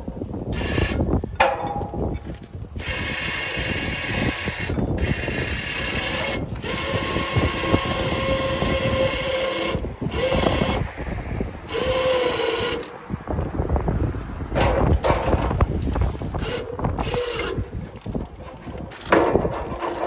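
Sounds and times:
winch motor whining: 0:02.8 - 0:10.9, 0:11.6 - 0:13.0, 0:15.2 - 0:20.0.

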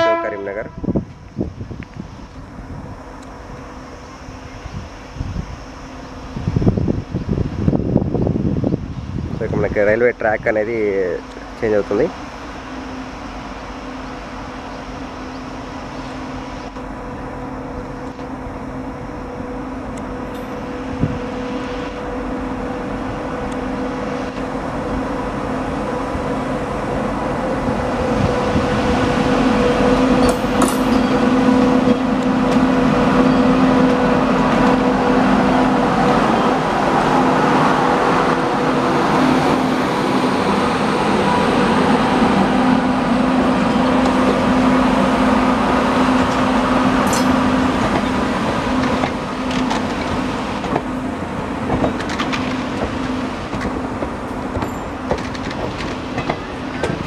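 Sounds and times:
electric locomotive hum: 0:00.0 - 0:57.0
wheels rumbling on rails: 0:00.0 - 0:57.0.

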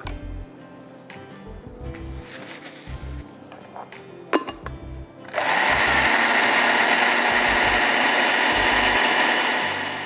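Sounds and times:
blender running: 0:05.3 - 0:10.0.

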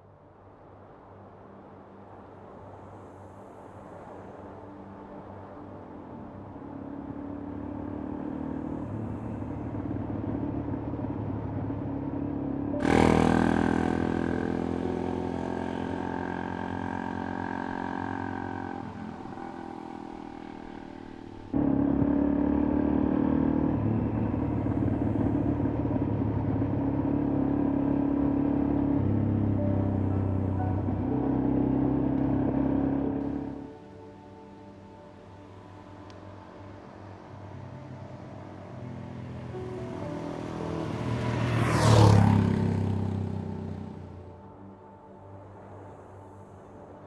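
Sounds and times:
motorcycle engine running: 0:12.8 - 0:33.6, 0:38.8 - 0:44.3.

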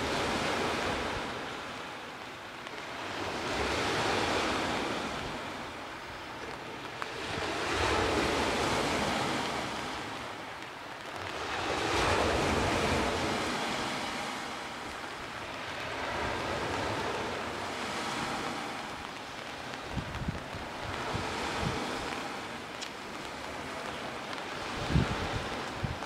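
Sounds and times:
waves breaking on pebbles: 0:06.8 - 0:10.4, 0:11.1 - 0:26.0.

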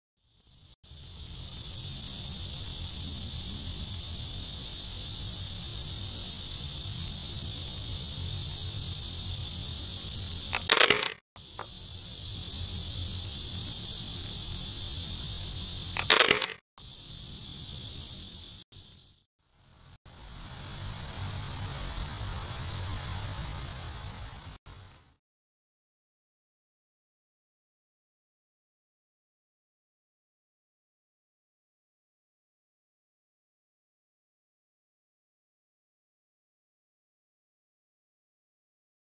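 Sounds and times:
insects droning: 0:00.2 - 0:25.2
loud cracks: 0:10.5 - 0:11.7, 0:16.0 - 0:16.6.

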